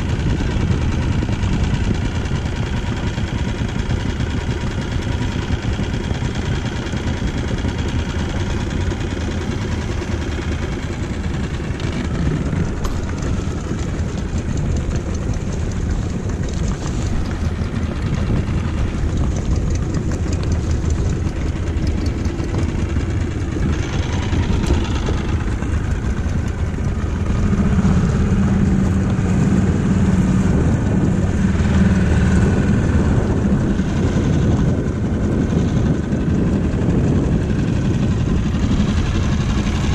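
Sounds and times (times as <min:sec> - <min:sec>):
outboard motor running: 0:00.0 - 0:39.9.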